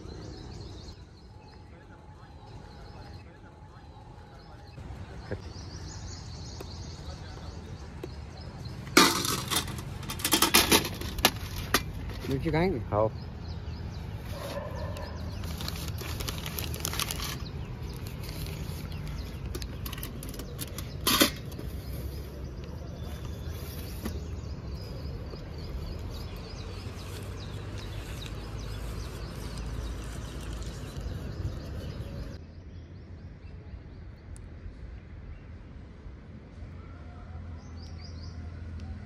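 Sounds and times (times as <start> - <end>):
birds chirping: 0.0 - 35.6
low street rumble: 0.0 - 39.0
newspaper rustling: 14.2 - 22.3.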